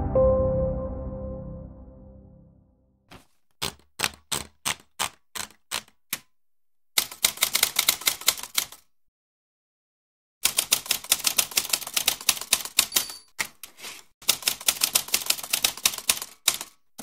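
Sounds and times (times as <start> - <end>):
typewriter keystrokes: 7.0 - 8.8, 14.3 - 16.8.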